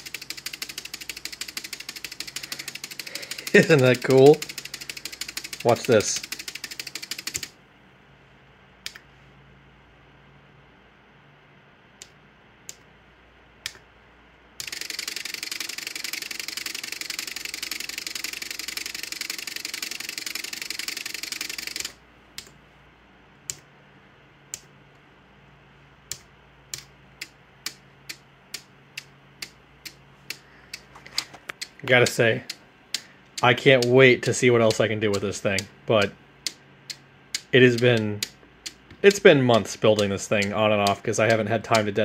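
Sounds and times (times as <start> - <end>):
fast relay chatter: 0.0 - 7.5, 14.6 - 22.0, 29.8 - 42.0
relay clicks: 0.0 - 7.5, 14.6 - 22.6, 26.1 - 42.0.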